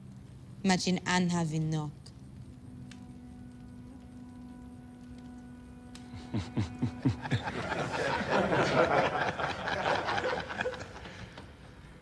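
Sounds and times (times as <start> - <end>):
group of men laughing: 6.2 - 11.4.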